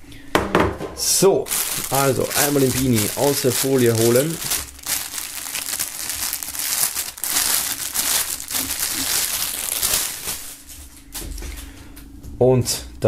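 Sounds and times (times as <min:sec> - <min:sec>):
plastic bag crinkling: 0:01.4 - 0:11.0.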